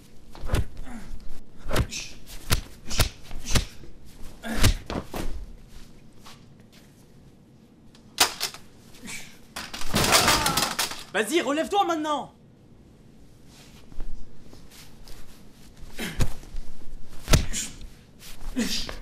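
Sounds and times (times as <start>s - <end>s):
punches and kicks landing: 4.4s - 5.4s, 9.8s - 10.8s, 17.2s - 17.8s.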